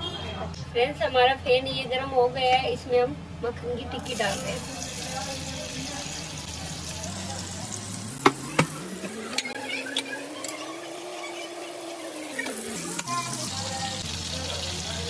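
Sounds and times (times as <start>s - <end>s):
butter sizzling in a pan: 4.0s - 15.0s.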